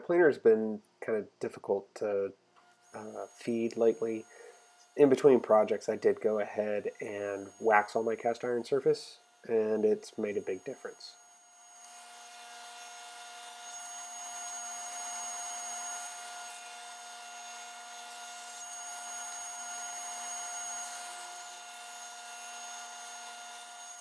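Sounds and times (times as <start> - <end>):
table saw cutting wood: 2.6 - 24.0.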